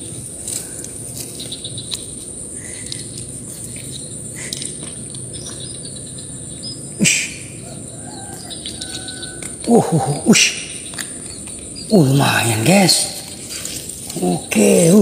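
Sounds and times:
insects trilling: 0.0s - 15.0s
faint clicks: 0.5s - 5.7s.

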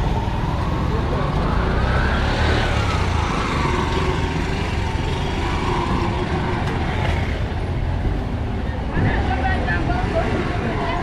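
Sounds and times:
street noise: 0.0s - 11.0s.

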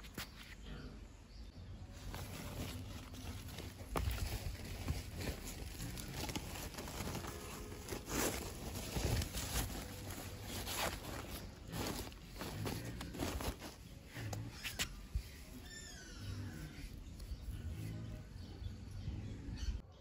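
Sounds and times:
plastic sack rustling: 2.0s - 14.8s.

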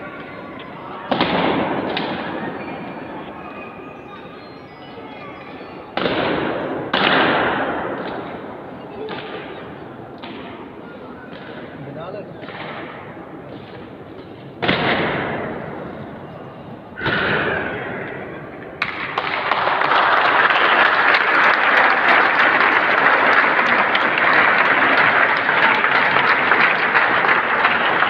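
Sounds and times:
crowd noise: 0.0s - 28.0s
crowd clapping: 18.8s - 28.0s.

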